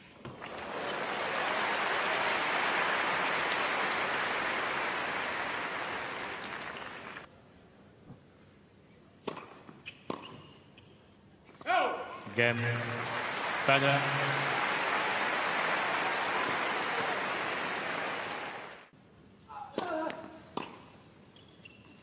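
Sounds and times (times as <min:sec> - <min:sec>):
stadium crowd applauding: 0:00.4 - 0:07.3, 0:12.3 - 0:18.9
tennis balls struck by rackets: 0:09.2 - 0:10.3.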